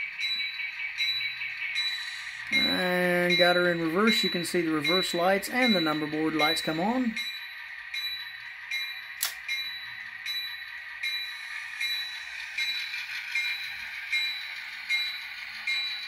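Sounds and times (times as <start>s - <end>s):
faint diesel engine: 0.0s - 16.0s
locomotive bell ringing: 0.0s - 16.0s
sharp click: 9.2s - 9.4s.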